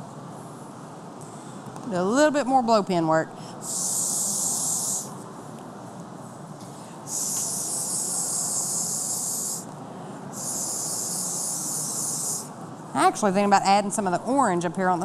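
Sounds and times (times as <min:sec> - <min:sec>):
blow pen spraying hiss: 0:03.6 - 0:05.2, 0:07.0 - 0:12.6.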